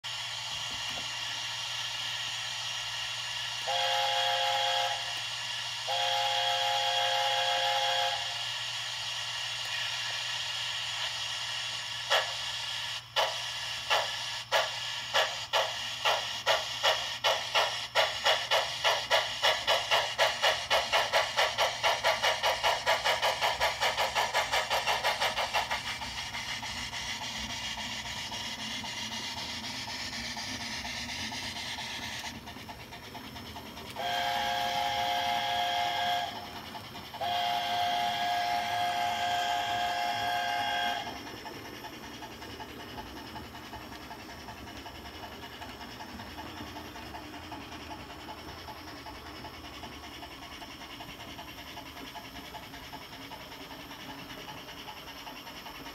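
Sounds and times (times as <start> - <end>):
steam hiss: 0.0 - 55.9
locomotive exhaust chuffs: 0.3 - 55.9
locomotive whistle blasts: 3.6 - 5.1, 5.9 - 8.4, 34.0 - 36.5, 37.2 - 41.2.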